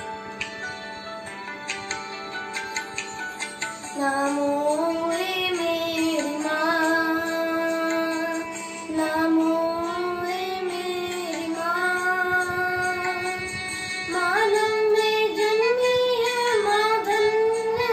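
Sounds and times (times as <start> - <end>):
boy singing a hymn: 4.0 - 17.9.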